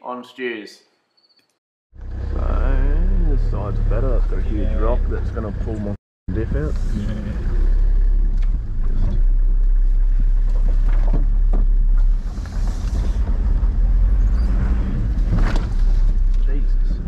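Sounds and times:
vehicle engine running low: 0:02.0 - 0:17.0.

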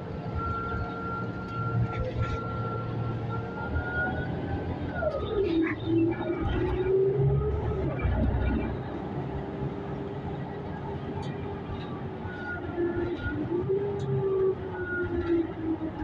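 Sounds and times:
bus drivetrain whine: 0:00.0 - 0:16.0
low road rumble: 0:00.0 - 0:16.0.

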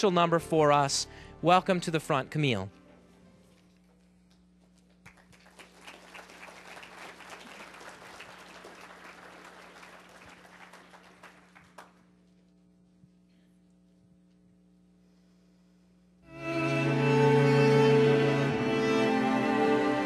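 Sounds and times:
audience applauding: 0:04.9 - 0:12.1.

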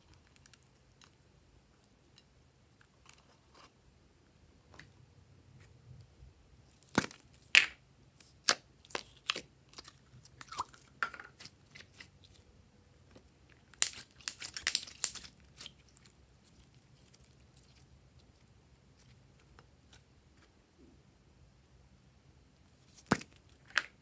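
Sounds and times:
slime sticky pops and crackles: 0:13.7 - 0:15.7.

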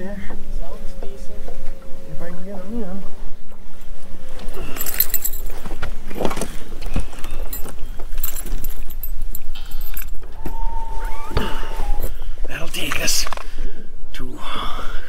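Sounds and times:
clicks and rattles of fishing gear: 0:04.4 - 0:10.5
light metallic jingling: 0:04.4 - 0:10.7.

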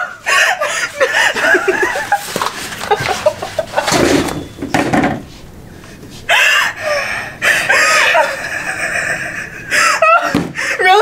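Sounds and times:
girls' squealing laughter: 0:00.0 - 0:04.4, 0:06.3 - 0:10.4.

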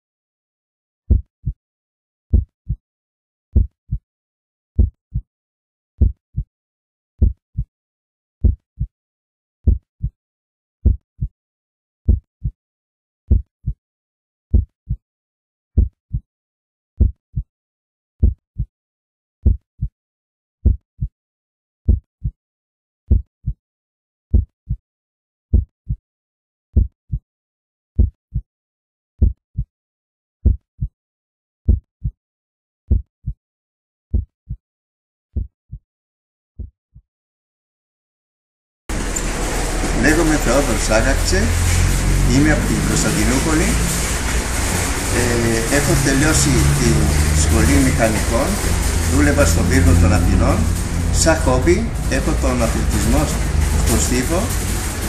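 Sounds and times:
heartbeat thumps: 0:01.1 - 0:01.6, 0:02.3 - 0:02.8, 0:03.6 - 0:04.0, 0:04.8 - 0:05.2, 0:06.0 - 0:06.5, 0:07.2 - 0:07.7, 0:08.4 - 0:08.9, 0:09.6 - 0:10.2, 0:10.8 - 0:11.3, 0:12.1 - 0:12.6, 0:13.3 - 0:13.8, 0:14.5 - 0:15.0, 0:15.8 - 0:16.2, 0:17.0 - 0:17.5, 0:18.2 - 0:18.7, 0:19.4 - 0:19.9, 0:20.6 - 0:21.1, 0:21.9 - 0:22.4, 0:23.1 - 0:23.6, 0:24.3 - 0:24.8, 0:25.5 - 0:26.0, 0:26.8 - 0:27.2, 0:28.0 - 0:28.4, 0:29.2 - 0:29.7, 0:30.4 - 0:30.9, 0:31.7 - 0:32.2, 0:32.9 - 0:33.4, 0:34.1 - 0:34.6, 0:35.4 - 0:35.8, 0:36.6 - 0:37.0.

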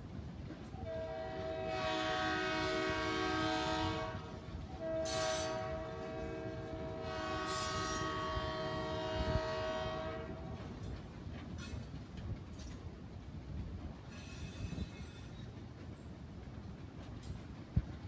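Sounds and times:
rumble of freight cars rolling: 0:00.0 - 0:18.0
locomotive air horn blasts: 0:00.8 - 0:10.6.

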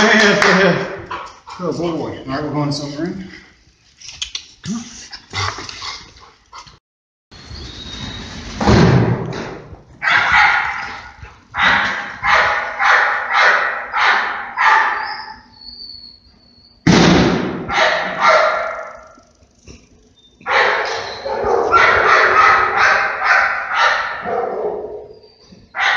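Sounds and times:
dog barking in echoing room: 0:10.0 - 0:15.6, 0:17.6 - 0:19.3, 0:20.4 - 0:25.9.

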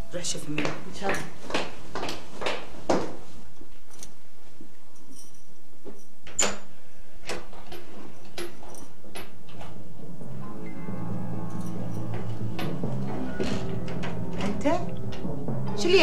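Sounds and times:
footsteps: 0:00.0 - 0:06.2, 0:11.4 - 0:16.0.

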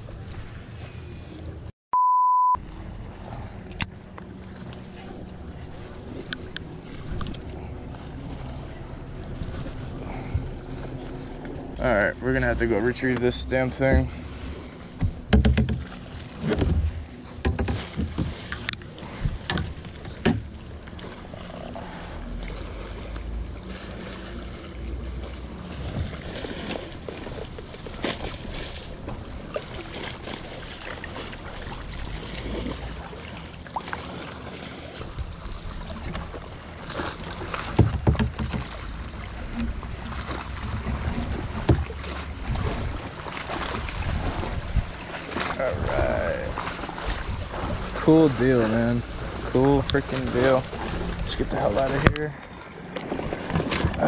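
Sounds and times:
paddle splashing in water: 0:12.5 - 0:54.0
paddle knocking against hull: 0:13.1 - 0:14.3, 0:14.9 - 0:21.1, 0:36.0 - 0:46.0.

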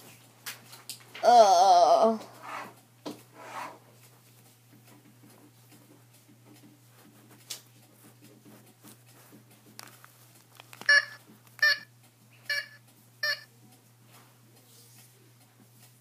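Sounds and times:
soft rustling of handling: 0:04.0 - 0:11.6.

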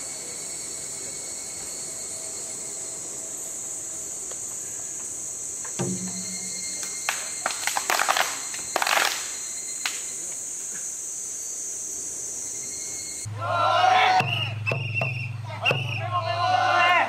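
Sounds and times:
insects shrilling: 0:00.0 - 0:13.3
hand claps: 0:06.8 - 0:10.0.

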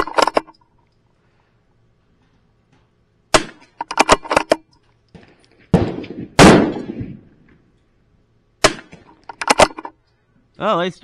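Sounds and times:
rifle shots: 0:03.3 - 0:04.6, 0:05.7 - 0:07.3, 0:08.6 - 0:09.8.

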